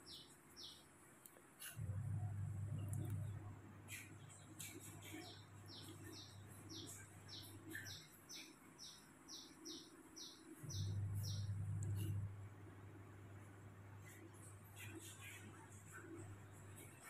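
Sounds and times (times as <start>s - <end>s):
small bird chirping: 0.0s - 0.9s, 2.7s - 12.3s
faint low hum: 0.0s - 17.0s.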